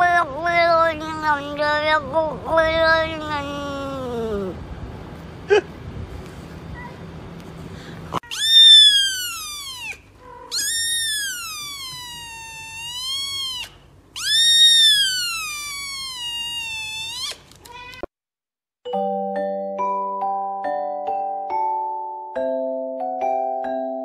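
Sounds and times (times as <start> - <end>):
kitten meowing: 8.2 - 18.1.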